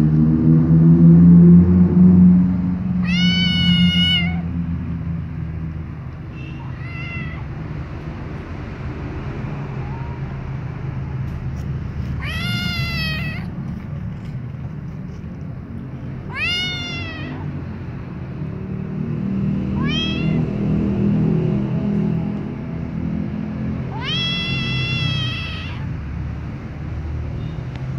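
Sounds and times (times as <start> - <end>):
kitten meowing: 3.0 - 4.6, 6.2 - 7.8, 9.6 - 10.4, 12.0 - 13.5, 16.2 - 17.6, 19.7 - 20.5, 23.9 - 26.0.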